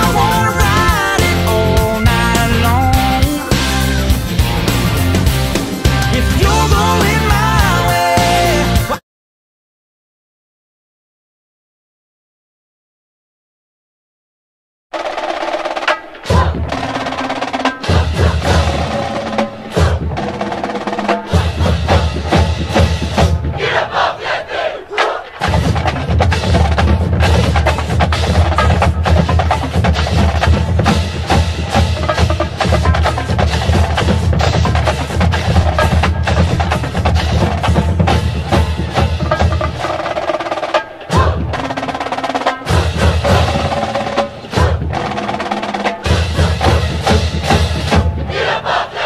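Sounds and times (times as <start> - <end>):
percussion-heavy music: 0.0 - 9.0, 15.0 - 49.0.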